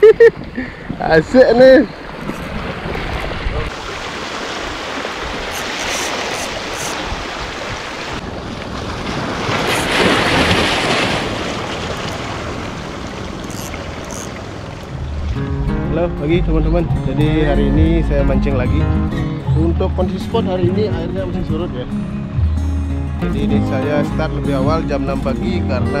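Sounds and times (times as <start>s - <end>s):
waves washing against rocks: 2.0s - 15.0s
wind on microphone: 2.0s - 15.6s.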